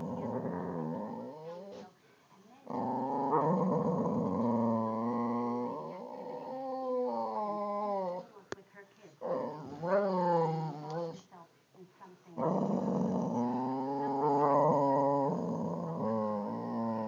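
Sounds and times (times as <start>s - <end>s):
dogs growling: 0.0s - 2.0s, 2.6s - 8.3s, 9.2s - 11.2s, 12.4s - 17.0s.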